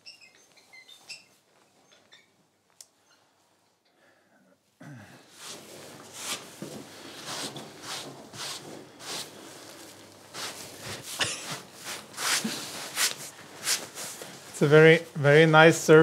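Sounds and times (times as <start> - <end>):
rustles and scuffs of handling: 5.3 - 15.7
footsteps: 5.4 - 15.2.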